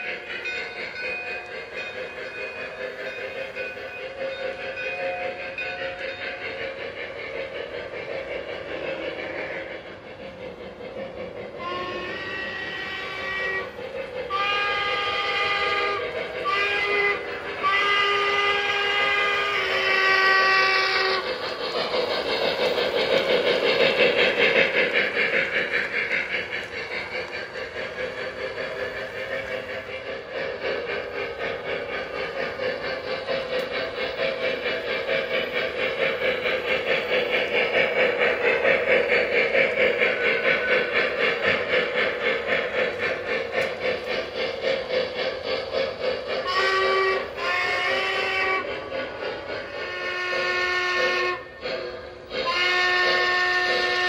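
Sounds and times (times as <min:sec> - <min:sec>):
model train running on track: 0:00.0 - 0:54.0
steam chuffing: 0:00.0 - 0:54.0
model steam whistle blasts: 0:11.6 - 0:21.3, 0:46.4 - 0:48.7, 0:49.8 - 0:51.6, 0:52.4 - 0:54.0.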